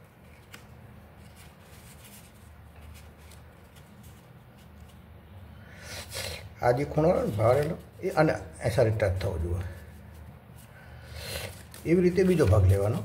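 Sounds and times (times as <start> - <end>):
paper rustling and tapping: 11.6 - 13.0.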